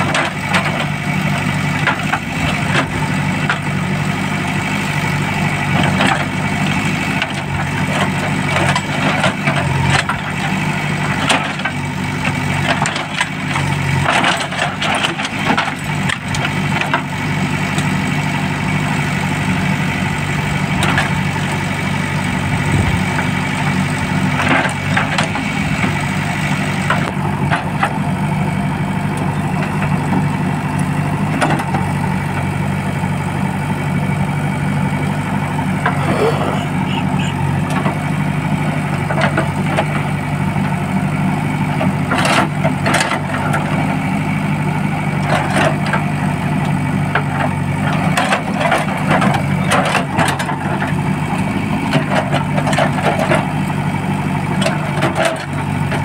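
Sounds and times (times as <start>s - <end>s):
diesel engine running under load: 0.0s - 56.0s.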